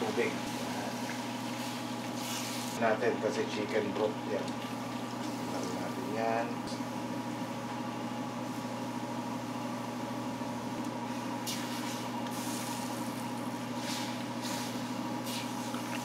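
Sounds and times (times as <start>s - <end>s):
broth simmering: 0.0s - 7.3s
kitchen equipment hum: 0.0s - 16.0s.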